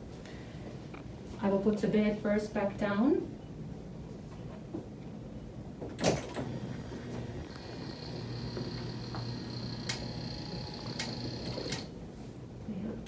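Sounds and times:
bed motor humming and whining: 6.0 - 12.0
sharp clicks: 10.8 - 11.9.

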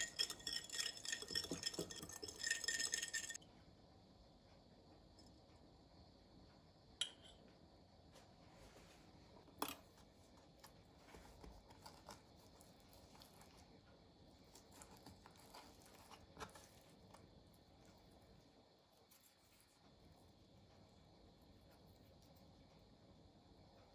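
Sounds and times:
metal utensils clinking on glass bowl: 0.0 - 3.4.

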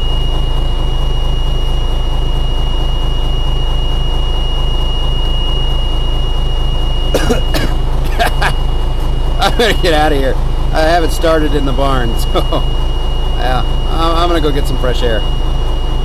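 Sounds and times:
diesel truck engine idling: 0.0 - 16.0
steady high-pitched tone: 0.0 - 16.0.

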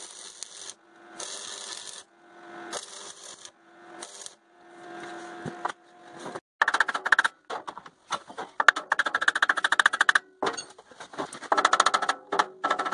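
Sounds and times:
welding arc crackling: 0.0 - 4.4
welder hum: 0.0 - 6.4.

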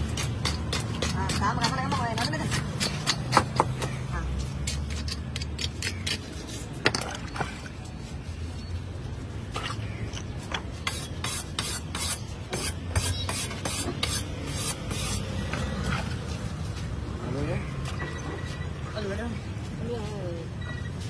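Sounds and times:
knife blade scraping: 10.8 - 15.3.

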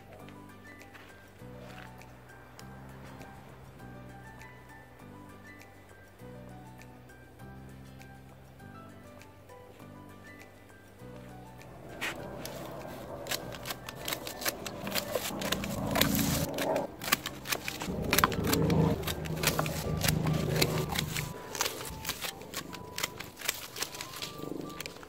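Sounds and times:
secateurs snipping stems: 11.9 - 25.0.

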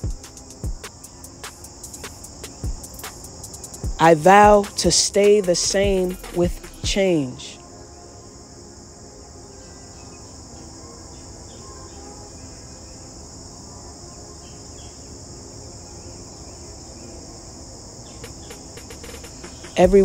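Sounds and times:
crickets chirping: 0.0 - 20.0.

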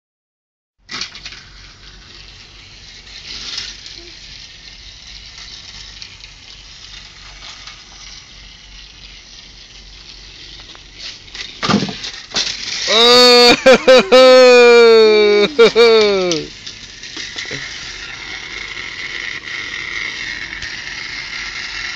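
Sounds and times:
toy train whirring: 0.9 - 21.9
child yelling: 12.9 - 16.5.

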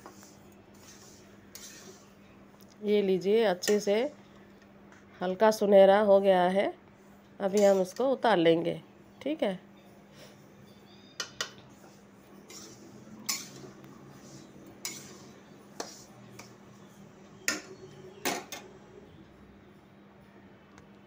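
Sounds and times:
metal spoon clinking on pan: 13.3 - 13.6.

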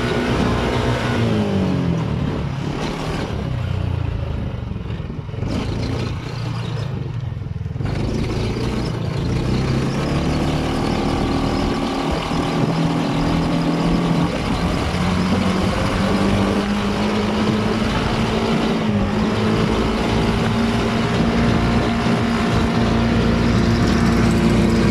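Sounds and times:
buggy engine running: 0.0 - 24.9.

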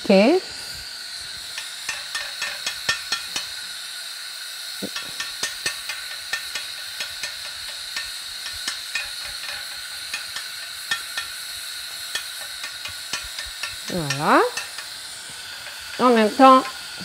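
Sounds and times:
steady hiss: 0.0 - 17.0
utensil tapping flatbread on griddle: 1.9 - 3.5, 5.0 - 14.9.

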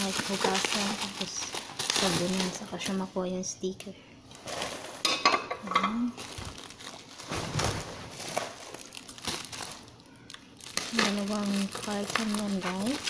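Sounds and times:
bubble wrap crinkling: 0.0 - 5.1, 6.0 - 13.0
dishware clinking: 5.1 - 6.1.

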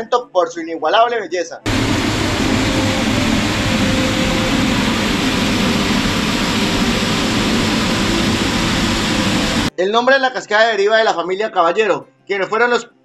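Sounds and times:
waterfall rushing onto rock: 1.7 - 9.7.

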